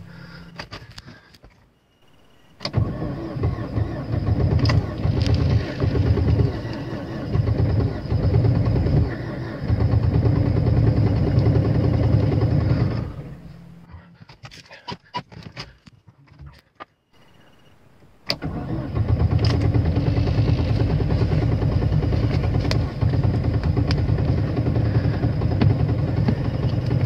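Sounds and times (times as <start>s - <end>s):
car engine starting: 2.5s - 13.9s, 18.1s - 27.0s.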